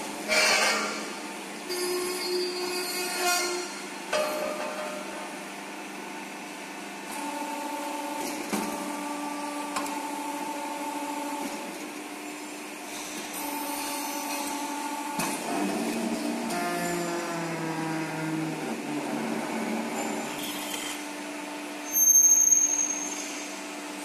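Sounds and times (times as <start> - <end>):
machine drive whine: 7.0 - 24.0.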